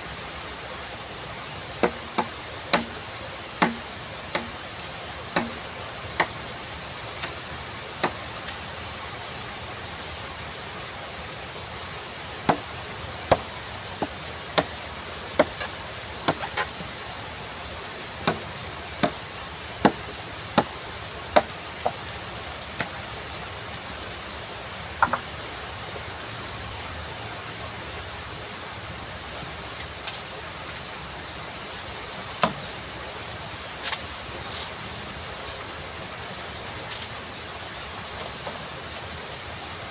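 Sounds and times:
high insect drone: 0.0s - 39.9s
machete chopping bamboo: 1.8s - 4.6s, 5.3s - 6.4s, 8.0s - 8.6s, 12.5s - 12.7s, 13.3s - 16.9s, 18.2s - 19.2s, 19.8s - 22.0s, 22.8s - 23.0s, 25.0s - 25.3s, 32.4s - 32.7s.

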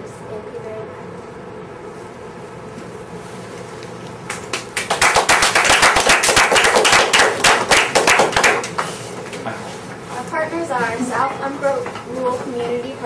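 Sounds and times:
small audience clapping: 4.2s - 9.5s.

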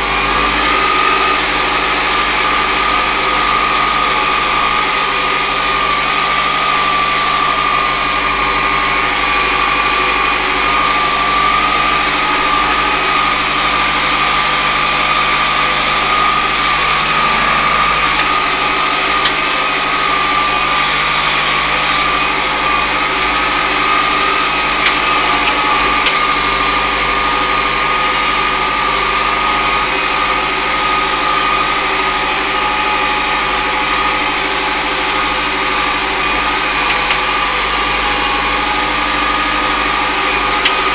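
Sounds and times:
constant high whine: 0.0s - 27.4s
tractor engine running: 0.0s - 40.9s.

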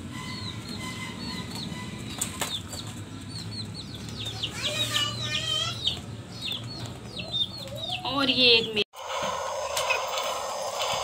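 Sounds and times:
chicks cheeping: 0.0s - 8.8s.

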